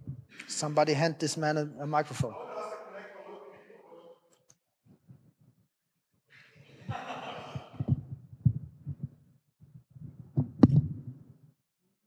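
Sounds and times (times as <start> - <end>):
low thumps and knocks: 7.6 - 11.4
microphone handling rustle: 10.0 - 11.4.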